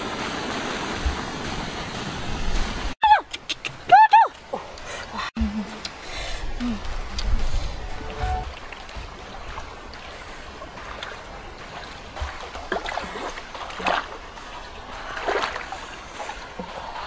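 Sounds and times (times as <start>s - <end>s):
river water splashing: 0.0s - 17.0s.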